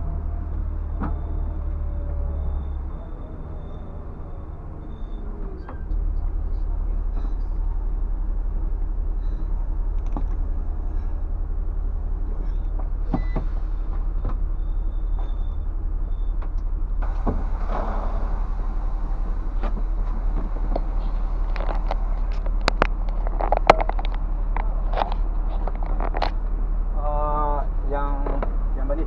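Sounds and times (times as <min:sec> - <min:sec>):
diesel bus engine rumble: 0:00.0 - 0:29.0
clicks and rattles: 0:20.7 - 0:26.4.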